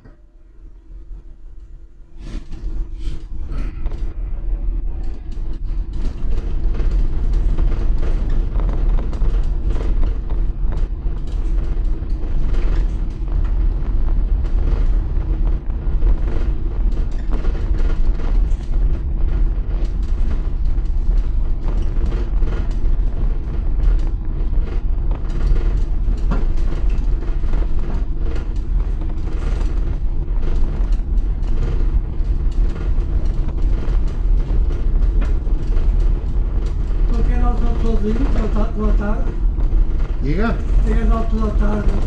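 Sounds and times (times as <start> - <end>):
small rattles and clicks: 1.6 - 42.0
tyres rumbling on cobblestones: 3.6 - 42.0.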